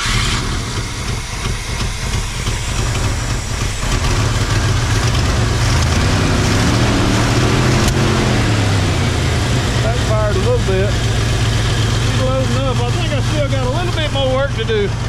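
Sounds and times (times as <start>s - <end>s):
truck engine idling: 0.0s - 15.0s.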